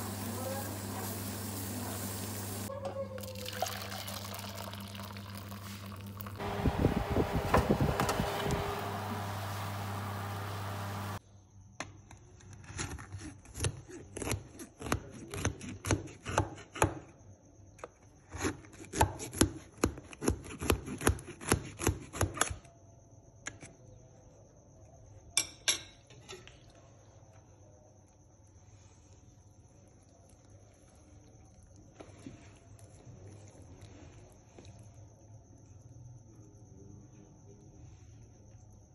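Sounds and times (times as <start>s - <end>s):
steady hum: 6.0s - 11.2s.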